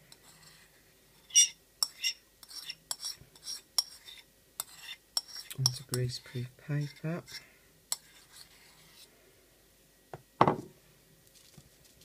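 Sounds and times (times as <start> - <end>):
metal spoon scraping ceramic bowl: 0.1 - 9.1.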